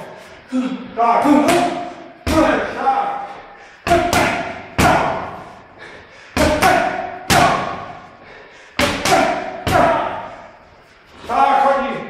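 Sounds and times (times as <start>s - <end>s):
boxing gloves hitting mitts: 3.8s - 5.5s, 6.4s - 8.0s, 8.8s - 10.3s.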